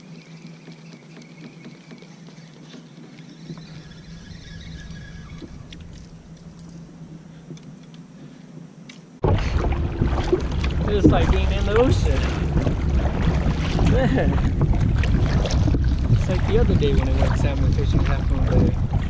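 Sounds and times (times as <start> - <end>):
faint low hum: 0.0 - 19.0
choppy water splashing: 9.2 - 19.0
wind buffeting microphone: 9.2 - 19.0.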